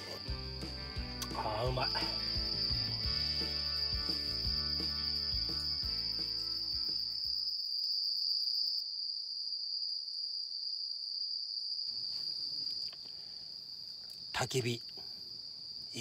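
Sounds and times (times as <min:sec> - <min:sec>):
background music with bass line: 0:00.0 - 0:07.0
insects chirring: 0:00.0 - 0:16.0.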